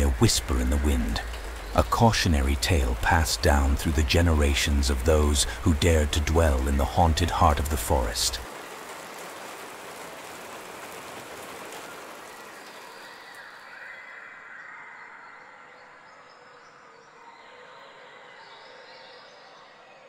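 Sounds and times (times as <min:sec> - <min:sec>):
rain falling: 0:00.0 - 0:14.2.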